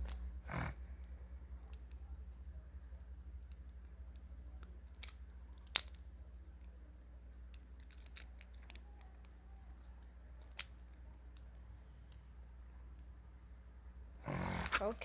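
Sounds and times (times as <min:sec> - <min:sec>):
plastic toy figure clicks: 0:03.5 - 0:06.0.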